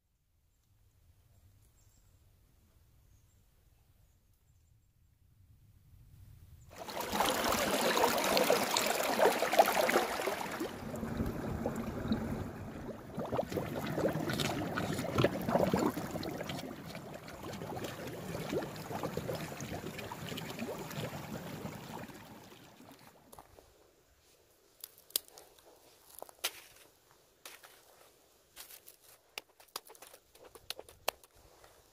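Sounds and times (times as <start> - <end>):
stream gurgling under ice: 6.7 - 23.7.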